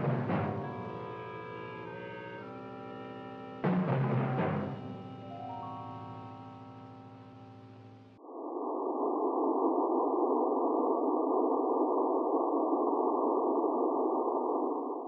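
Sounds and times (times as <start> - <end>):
music: 0.0 - 8.2.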